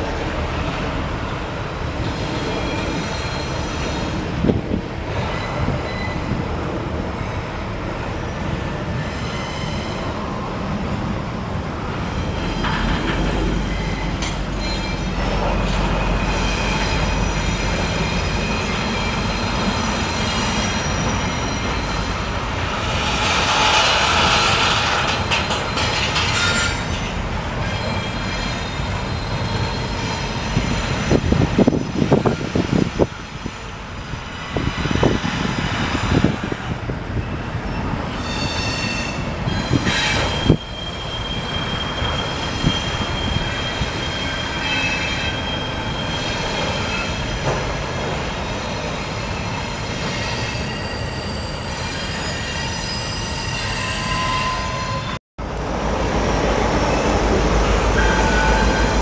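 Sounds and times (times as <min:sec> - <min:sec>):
train rolling past: 0:00.0 - 0:59.0
steel wheels squealing: 0:02.0 - 0:04.2, 0:05.2 - 0:06.4, 0:09.0 - 0:10.4, 0:12.0 - 0:33.3, 0:37.1 - 0:47.6, 0:48.4 - 0:55.2, 0:57.9 - 0:59.0
train cars clanking: 0:11.8 - 0:33.4, 0:34.0 - 0:55.2.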